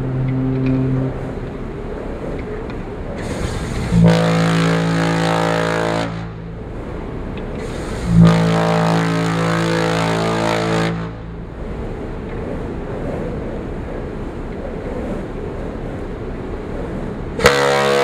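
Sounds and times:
rush of air: 0.0s - 17.9s
deep ship's whistle blasts: 3.9s - 6.4s, 8.1s - 11.3s, 17.4s - 18.0s.

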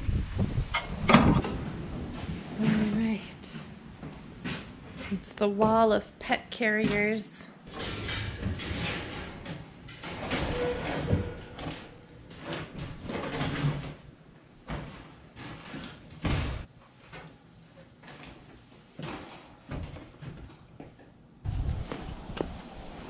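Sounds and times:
wire dog crate clattering: 7.7s - 13.8s.

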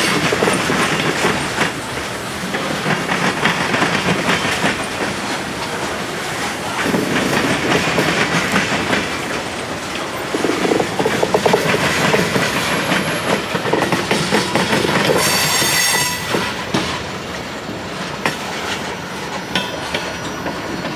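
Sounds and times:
train wheels clattering over rail joints: 0.0s - 20.9s
high wheel squeal: 15.1s - 16.7s, 18.6s - 20.9s.

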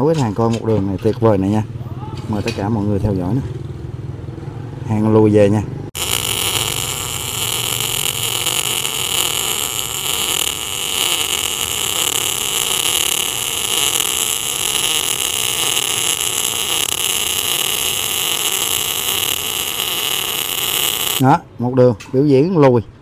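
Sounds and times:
welding arc hissing: 6.0s - 21.2s.

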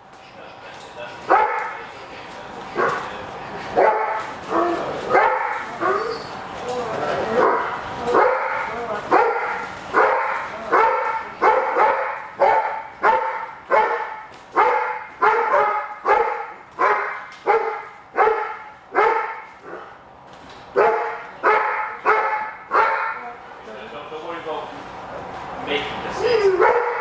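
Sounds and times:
dog barking aggressively: 1.3s - 1.8s, 3.7s - 6.1s, 7.4s - 19.9s, 20.8s - 23.2s, 26.6s - 27.0s.

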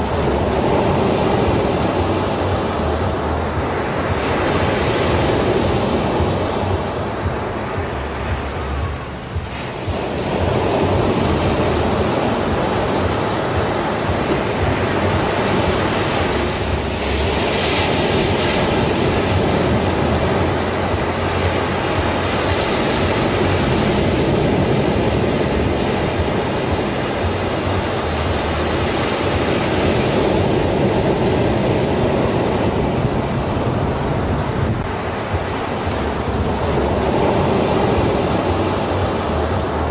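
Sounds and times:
sea surf on sandy beach: 0.0s - 39.9s.

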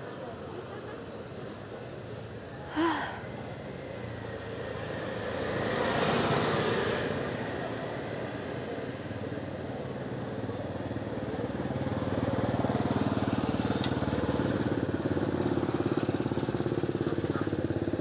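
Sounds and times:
small motorbike engine idling: 8.6s - 18.0s.

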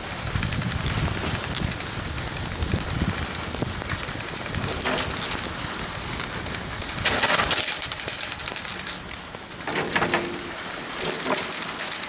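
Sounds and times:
crackle of fine ticks: 0.0s - 7.2s.

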